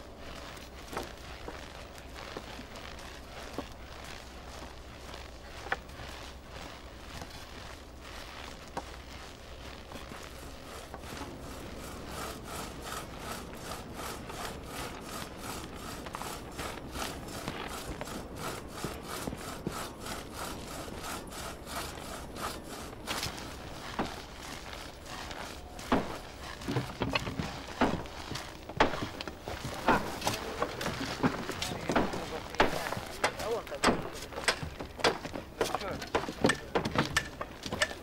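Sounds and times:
crosscut saw cutting wood: 0.0s - 38.0s
footsteps in snow: 0.0s - 38.0s.

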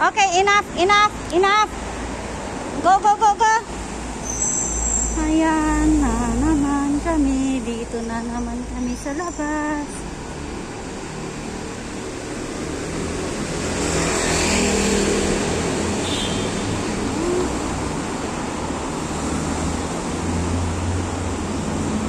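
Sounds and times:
city road traffic rumble: 0.0s - 22.0s
vehicle passing: 9.8s - 22.0s.

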